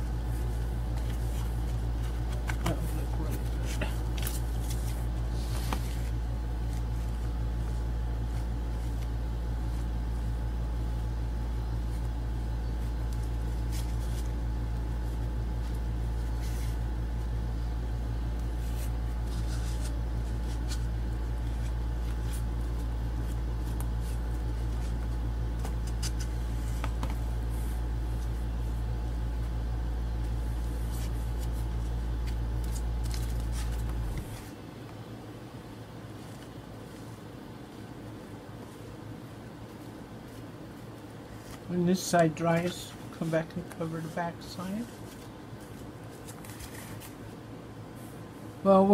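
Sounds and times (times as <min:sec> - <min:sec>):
steady low hum: 0:00.0 - 0:48.9
hands rustling paper towel: 0:00.2 - 0:10.3, 0:18.4 - 0:28.4, 0:36.1 - 0:48.3.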